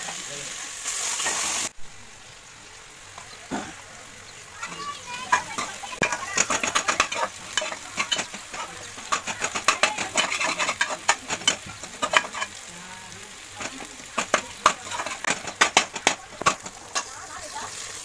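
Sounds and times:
soft sizzle: 0:00.0 - 0:18.0
metal ladle scraping pot: 0:04.6 - 0:12.6, 0:13.3 - 0:17.9.

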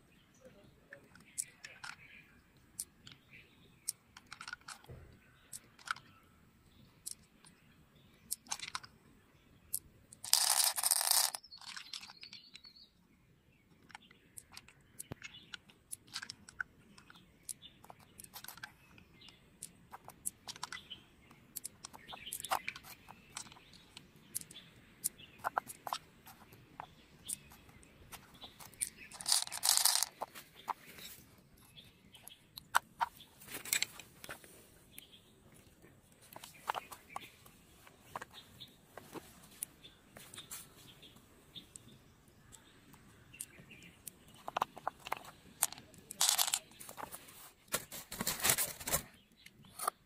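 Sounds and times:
small clicks and crackles: 0:00.9 - 0:06.2, 0:08.2 - 0:08.9, 0:09.7 - 0:12.7, 0:13.7 - 0:50.0
pearls clattering in shell: 0:10.2 - 0:12.7, 0:28.3 - 0:30.7, 0:44.2 - 0:47.1.

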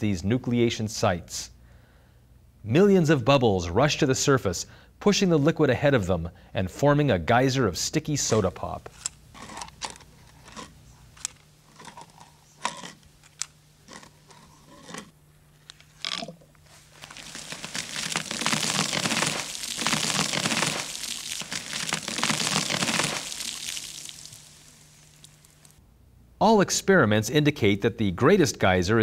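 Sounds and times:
soda geyser rushing spray: 0:17.2 - 0:25.8.

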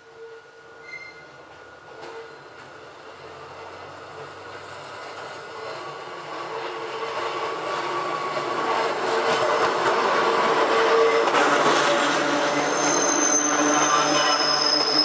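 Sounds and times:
electric railcar motor whine: 0:00.0 - 0:15.0
train wheels clicking over rails: 0:03.9 - 0:13.9.

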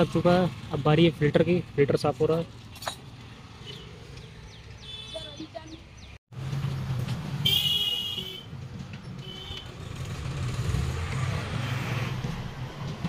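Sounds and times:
road traffic rumbling: 0:00.0 - 0:13.0
vehicle horn honking: 0:07.4 - 0:08.5, 0:09.2 - 0:09.7.

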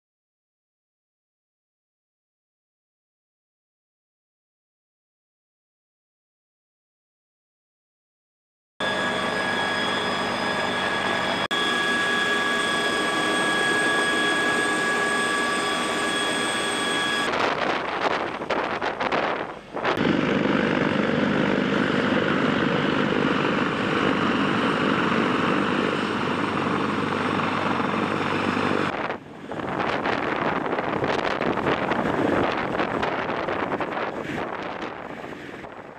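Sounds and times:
helicopter rotor noise: 0:08.8 - 0:35.9
helicopter turbines whining: 0:08.8 - 0:35.9.

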